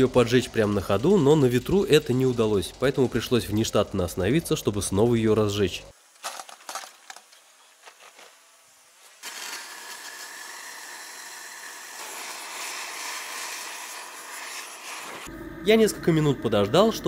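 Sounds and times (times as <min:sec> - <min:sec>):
burner hissing: 0:11.8 - 0:15.6.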